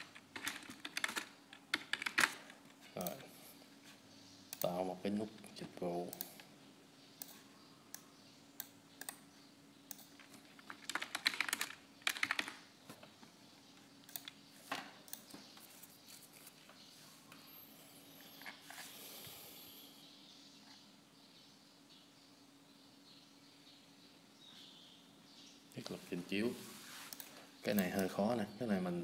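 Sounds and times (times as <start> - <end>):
keyboard typing: 0.0 - 3.2, 9.9 - 12.7, 14.1 - 14.4
faint steady hum: 0.0 - 29.0.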